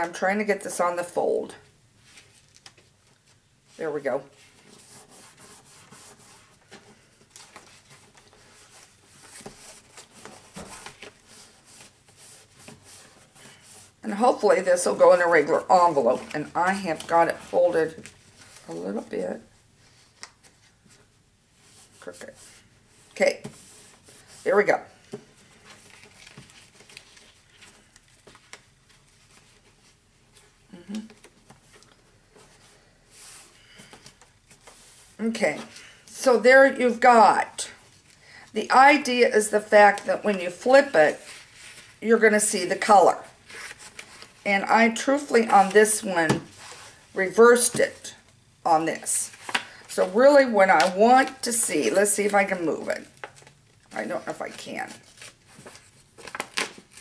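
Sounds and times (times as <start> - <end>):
paper card rustling and scraping: 39.8 - 42.0, 43.0 - 48.0, 53.2 - 57.0.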